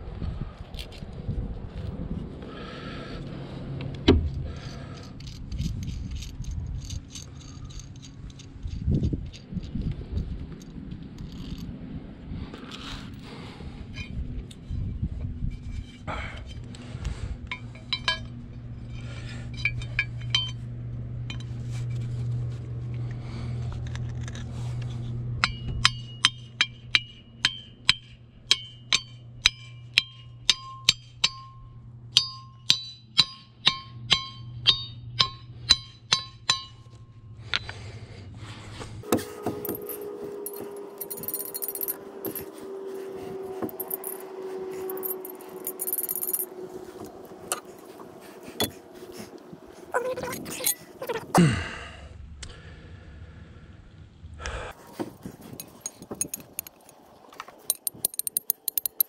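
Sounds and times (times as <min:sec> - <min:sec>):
low hum: 0:00.0 - 0:59.0
hammer striking metal: 0:25.4 - 0:36.8.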